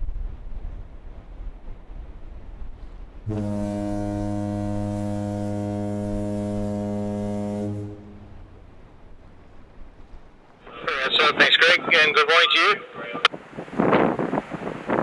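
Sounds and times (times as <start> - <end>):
ship's horn blast: 3.2 - 10.0.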